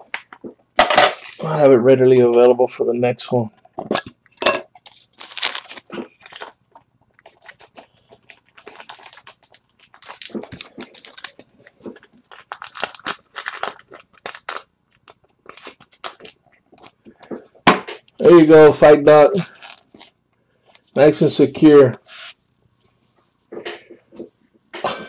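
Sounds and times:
plastic crinkling and rustling: 3.7s - 24.6s.

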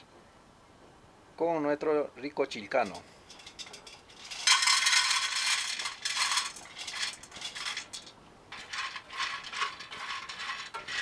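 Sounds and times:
corn kernels clattering into metal pan: 2.7s - 11.0s
kernels rattling stirred with spoon: 2.8s - 11.0s.

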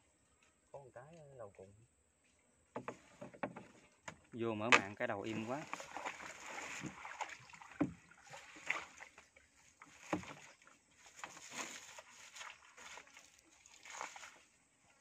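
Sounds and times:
light water splashing: 0.2s - 15.0s
boat dull knocks: 2.7s - 7.1s, 10.0s - 10.5s.

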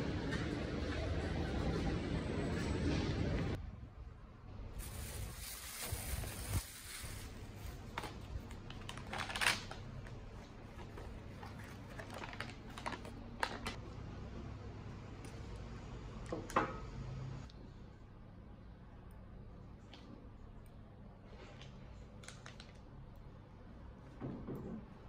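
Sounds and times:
paper wrapping crinkling: 4.8s - 13.8s.

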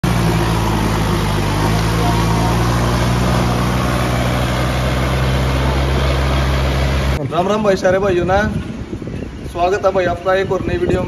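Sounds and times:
diesel tractor engines under load: 0.0s - 11.0s.

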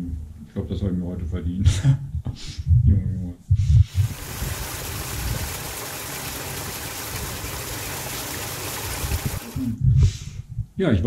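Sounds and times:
rainwater pouring into storm drain: 4.0s - 9.8s.

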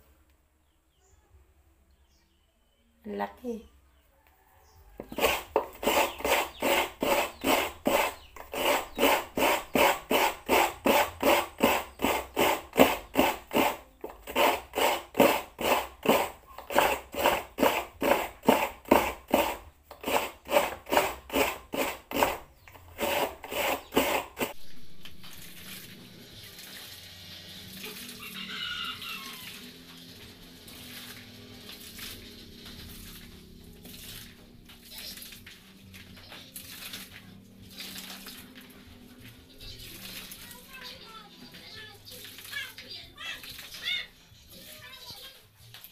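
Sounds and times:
coconut grater rasping: 5.0s - 41.2s.

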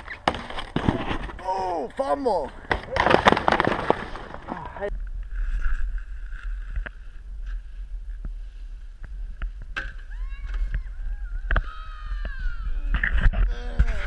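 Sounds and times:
wind on microphone: 4.9s - 14.0s.

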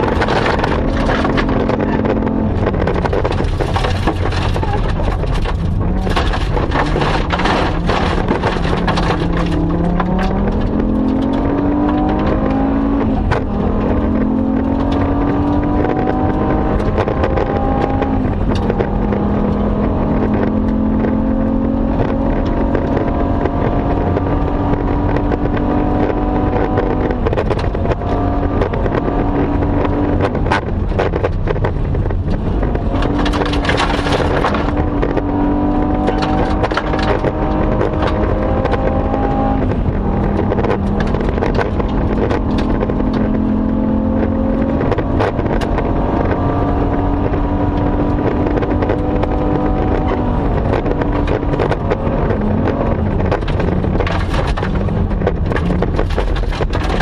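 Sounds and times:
gravel clattering against underbody: 0.0s - 19.3s, 44.4s - 57.0s
rally car engine revving: 0.0s - 57.0s.

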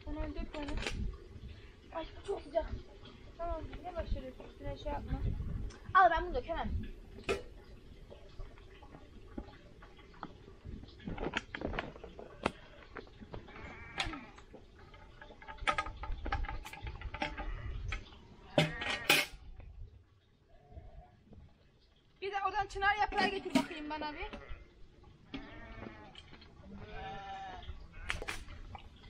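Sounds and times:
sheep bleating: 13.5s - 14.2s, 25.3s - 26.2s, 26.8s - 28.3s
knocks and clatters: 14.0s - 19.4s.

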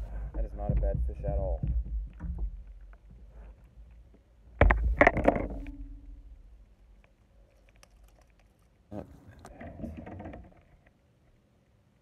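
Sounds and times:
small clicks and scrapes: 7.0s - 11.4s.

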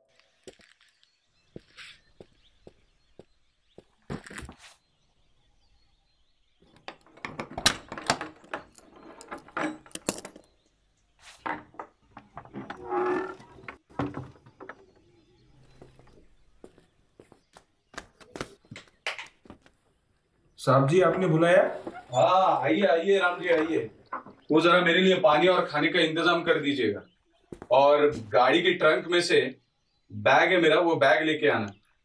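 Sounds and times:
wooden door creaking open: 6.6s - 10.5s, 11.4s - 16.2s, 21.0s - 24.9s
key lock and chain rattling: 7.0s - 10.6s.

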